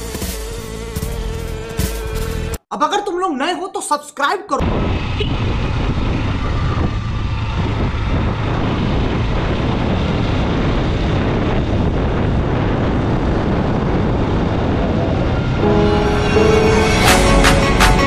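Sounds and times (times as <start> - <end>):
motorcycle engine drone: 0.0 - 2.6, 4.6 - 18.0
rushing wind noise: 4.6 - 18.0.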